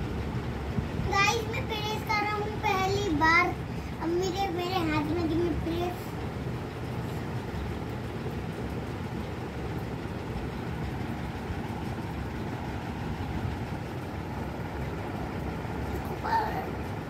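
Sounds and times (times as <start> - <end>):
low mechanical rumble: 0.0 - 17.0.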